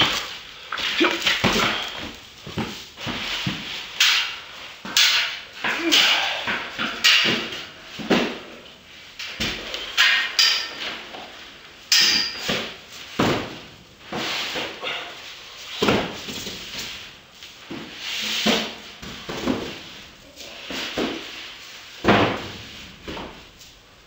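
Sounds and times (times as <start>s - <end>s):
foam boxes knocking and scraping: 0.0s - 5.6s, 6.5s - 8.7s, 12.4s - 23.6s
foam boxes rubbing and squeaking: 14.0s - 23.4s.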